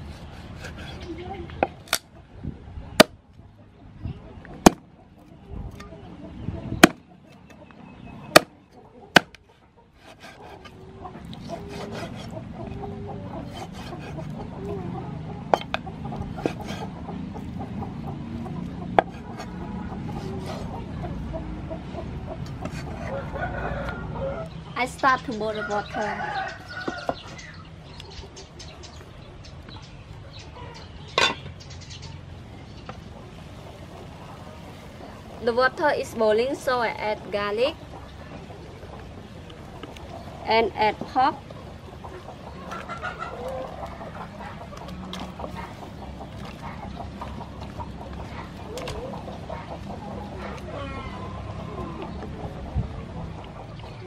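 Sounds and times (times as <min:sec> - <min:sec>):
chickens clucking: 0:00.0 - 0:54.0
cleaver chopping on wooden board: 0:04.6 - 0:04.8, 0:09.1 - 0:09.4
metal lid clanking on pot: 0:31.2 - 0:31.5.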